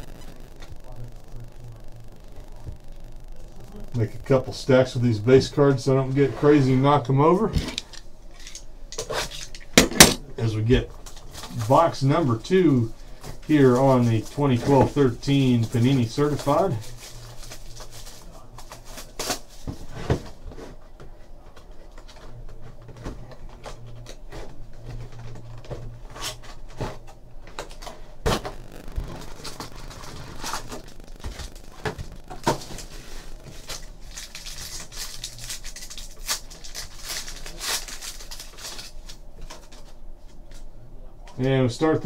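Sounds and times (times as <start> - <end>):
plastic wrap crinkling and tearing: 13.5 - 19.8, 25.2 - 40.0
foil pack tearing: 13.6 - 19.7, 26.1 - 40.0.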